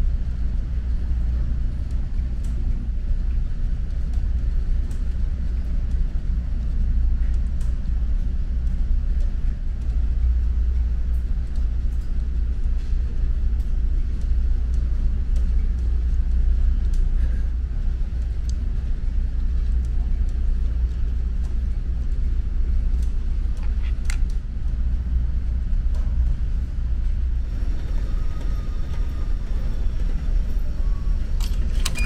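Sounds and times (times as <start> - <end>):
ship engines rumbling: 12.2 - 32.0.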